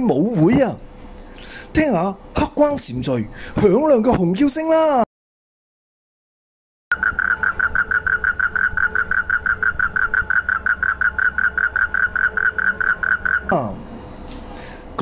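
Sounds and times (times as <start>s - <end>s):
toad trilling mating call: 6.9s - 13.7s.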